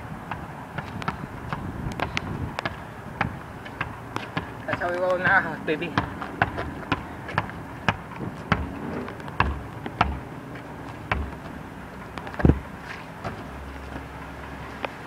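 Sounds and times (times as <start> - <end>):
basketball bouncing on hard court: 0.3 - 10.4, 11.0 - 12.7.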